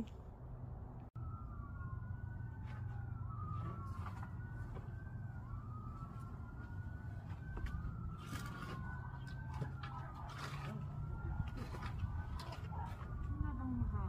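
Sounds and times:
steady low rumble: 0.0 - 10.0
emergency sirens wailing: 0.0 - 14.0.

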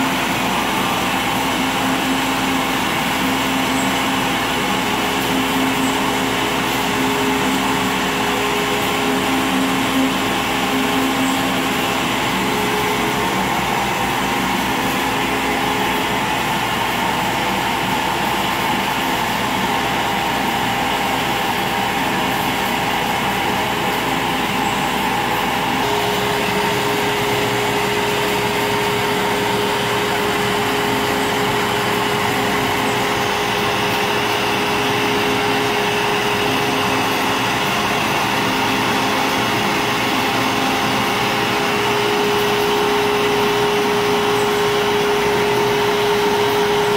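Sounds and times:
router spindle cutting: 0.0 - 18.0, 22.8 - 46.9
dust extraction vacuum: 0.0 - 46.9.

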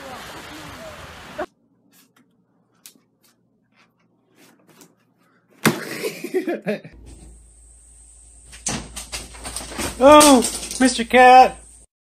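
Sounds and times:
knocking and rustling on floor: 8.5 - 10.9
plastic basket clattering over: 8.6 - 11.2.

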